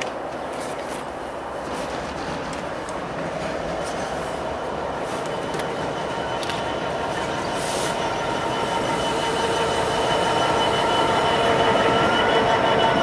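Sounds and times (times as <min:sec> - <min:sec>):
train wheels rumbling on rails: 0:00.0 - 0:13.0
wheels squealing: 0:03.7 - 0:13.0.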